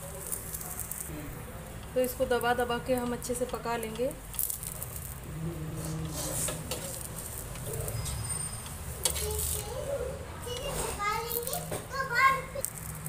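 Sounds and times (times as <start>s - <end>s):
spoon scraping on hot griddle: 0.0s - 11.8s
pigeon cooing: 9.7s - 10.3s.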